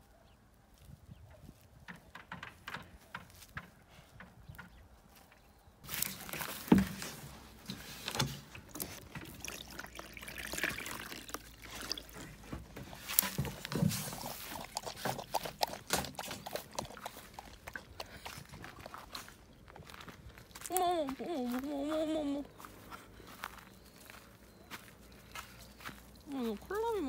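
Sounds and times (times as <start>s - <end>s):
water pouring into plastic tub: 8.7s - 17.8s
dog lapping water: 8.7s - 19.3s.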